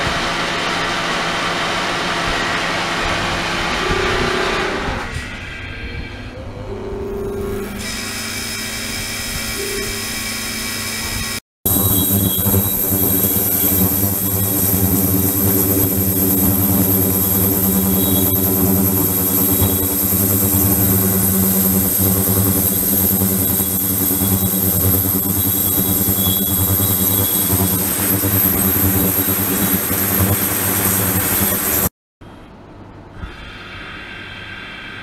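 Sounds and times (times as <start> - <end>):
ultrasonic cleaner electrical buzz: 7.1 - 31.9.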